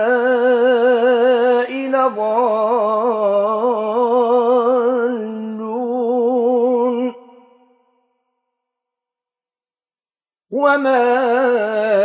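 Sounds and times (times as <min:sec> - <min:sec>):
man chanting melodically: 0:00.0 - 0:07.3, 0:10.5 - 0:12.0.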